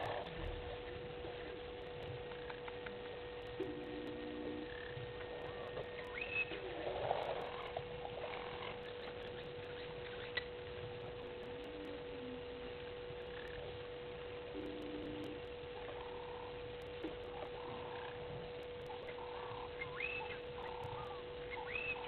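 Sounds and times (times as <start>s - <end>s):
background hiss: 0.0s - 22.0s
steady hum: 0.0s - 22.0s
short chirping calls: 18.9s - 22.0s.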